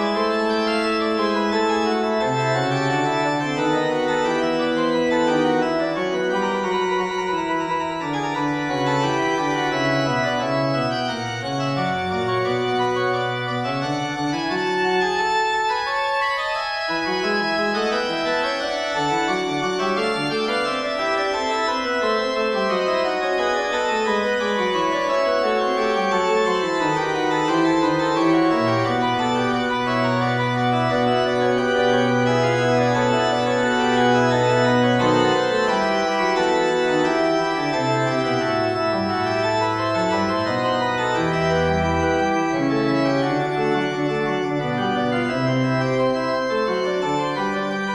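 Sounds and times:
slow organ music: 0:00.0 - 0:47.9.

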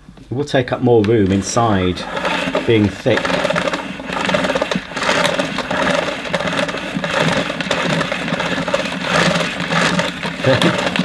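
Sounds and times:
vacuum cord reel rattling: 0:01.0 - 0:11.0.

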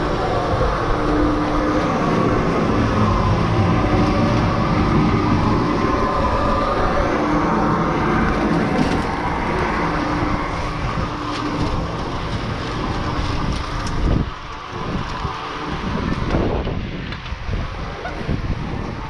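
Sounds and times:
chairlift machinery hum and clatter: 0:00.0 - 0:19.0
wind noise on microphone: 0:00.0 - 0:19.0.

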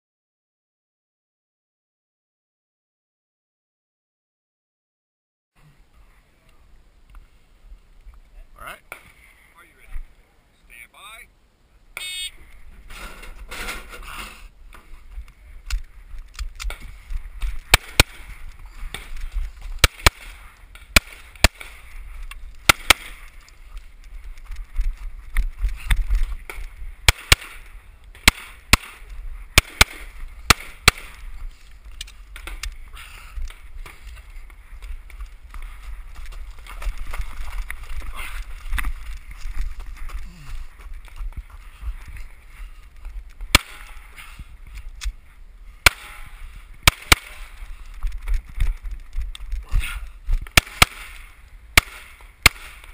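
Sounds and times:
pistol shots: 0:17.7 - 0:18.3, 0:19.8 - 0:21.8, 0:22.6 - 0:23.3, 0:27.0 - 0:27.6, 0:28.2 - 0:31.2, 0:43.5 - 0:44.0, 0:45.8 - 0:47.5, 0:50.6 - 0:52.9
scuffing and rustling on gravel: 0:33.6 - 0:45.3.

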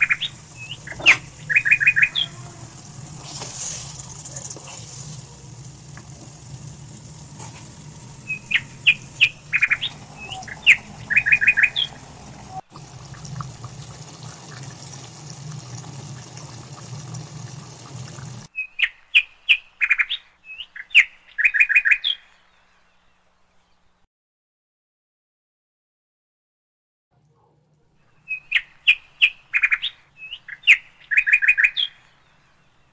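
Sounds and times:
bird chirping: 0:00.0 - 0:05.4, 0:07.6 - 0:12.6, 0:28.0 - 0:32.9
low hum with faint hiss: 0:00.0 - 0:18.5.

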